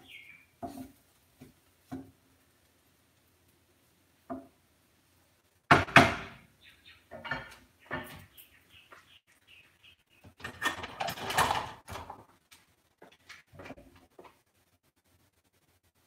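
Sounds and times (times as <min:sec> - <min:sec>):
utensils clattering and scraping: 0:10.3 - 0:12.3.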